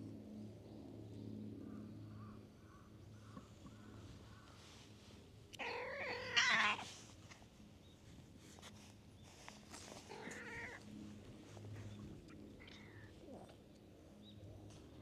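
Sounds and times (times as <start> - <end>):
cat meowing: 5.6 - 6.8, 10.1 - 10.8.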